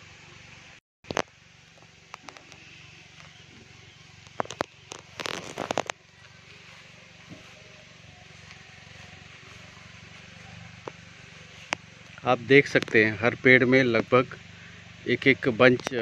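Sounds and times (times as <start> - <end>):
steady low hum: 0.0 - 16.0
rustling noise: 4.2 - 11.8.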